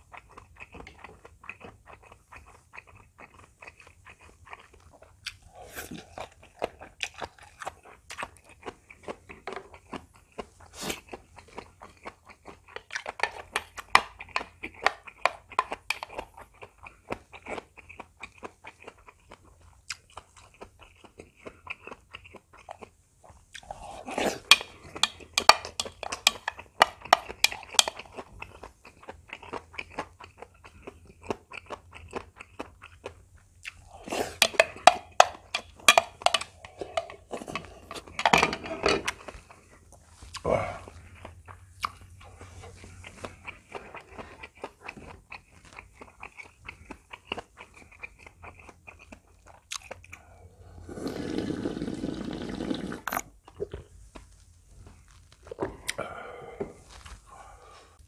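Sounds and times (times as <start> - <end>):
chewing and crunching food: 0.0 - 58.0
chopsticks clicking against a bowl: 24.5 - 28.0, 34.4 - 37.2.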